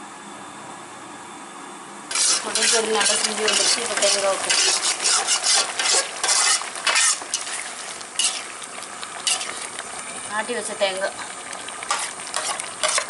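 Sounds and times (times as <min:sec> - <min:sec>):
metal ladle scraping a metal pot: 0:02.1 - 0:08.5, 0:09.2 - 0:09.6, 0:11.9 - 0:13.0.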